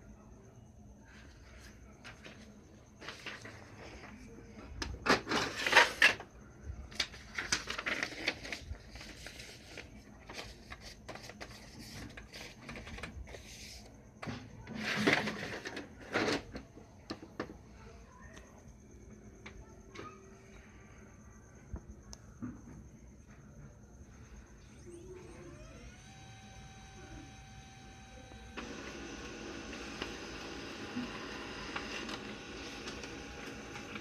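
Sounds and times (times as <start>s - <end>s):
plastic paper cassette scraping: 7.0s - 13.9s, 14.7s - 16.6s, 28.6s - 34.0s.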